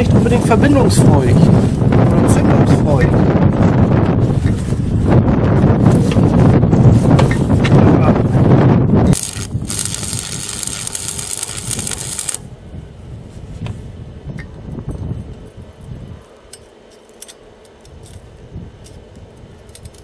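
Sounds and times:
welding arc crackling and hissing: 0:09.1 - 0:12.5.

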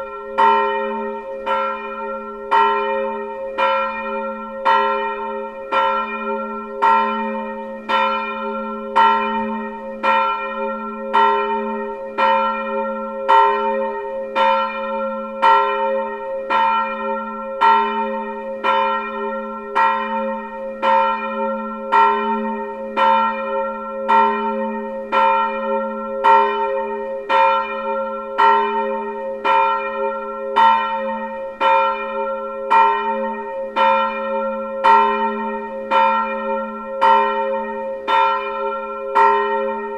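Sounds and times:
church bell ringing: 0:00.0 - 0:39.9.

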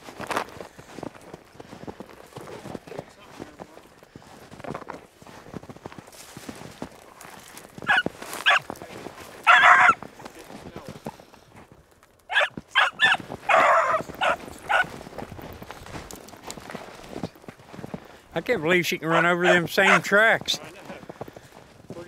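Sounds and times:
dog barking and baying: 0:07.8 - 0:08.7, 0:09.4 - 0:10.0, 0:12.3 - 0:14.9, 0:19.1 - 0:20.1.

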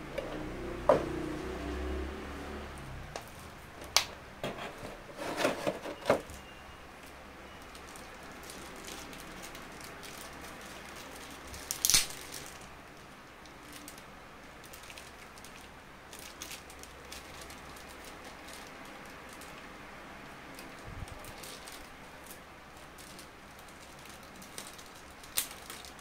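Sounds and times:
plastic packaging crinkling: 0:06.2 - 0:19.8, 0:20.5 - 0:26.0
sharp plastic crackle: 0:06.2 - 0:26.0.

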